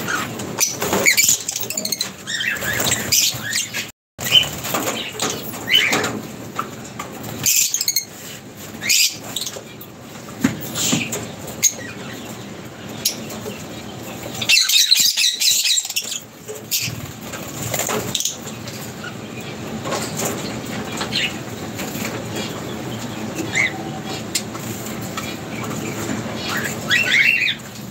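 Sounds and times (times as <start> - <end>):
lovebirds chirping: 0.0 - 6.0, 10.6 - 17.2.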